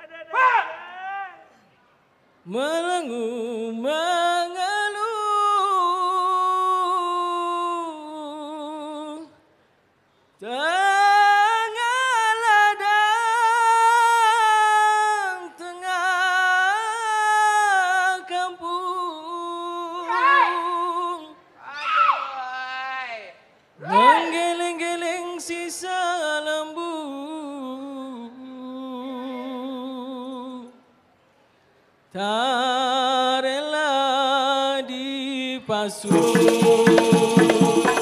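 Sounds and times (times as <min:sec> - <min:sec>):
person singing solo: 0:36.1 - 0:38.0.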